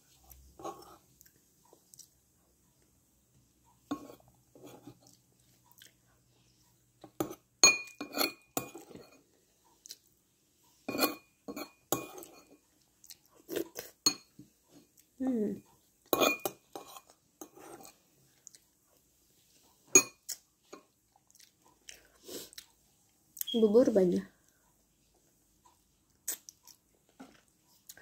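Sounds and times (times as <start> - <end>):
soft chewing: 0.0 - 23.6, 24.2 - 28.0
metal spoon clinking on ceramic bowl: 7.2 - 9.2, 10.9 - 12.6, 14.0 - 14.3, 16.1 - 17.9, 19.9 - 20.2.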